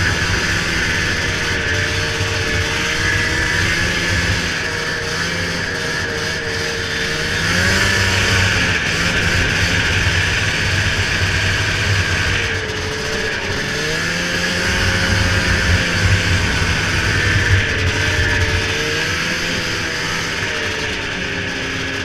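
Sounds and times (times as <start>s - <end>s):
snowmobile engine running: 0.0s - 22.0s.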